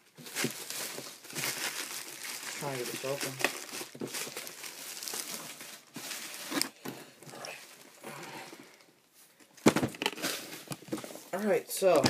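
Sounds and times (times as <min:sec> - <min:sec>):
plastic wrapping crinkling: 0:00.0 - 0:08.0
knocks and bumps of handling: 0:09.6 - 0:11.2.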